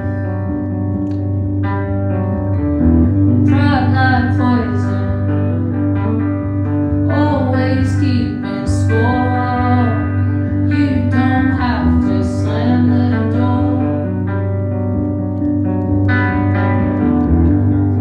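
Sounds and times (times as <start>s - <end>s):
steady low accompaniment: 0.0s - 18.0s
strummed guitar: 0.0s - 18.0s
woman singing: 3.4s - 6.3s, 7.0s - 14.6s.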